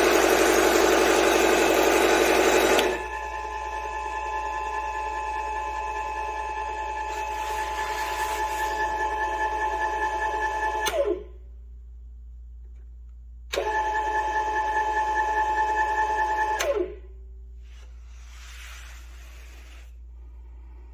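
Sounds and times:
table saw whining: 0:00.0 - 0:10.9.

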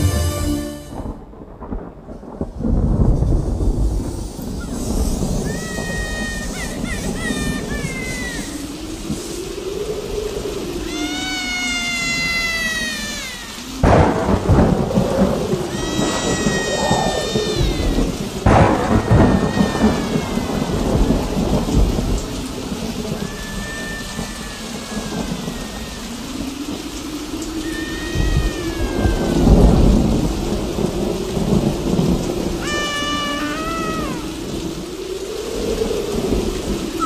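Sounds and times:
steady rain: 0:00.0 - 0:37.0
thunder rolling: 0:00.0 - 0:37.0
high wailing tones sliding down: 0:04.6 - 0:30.7, 0:32.6 - 0:34.6.

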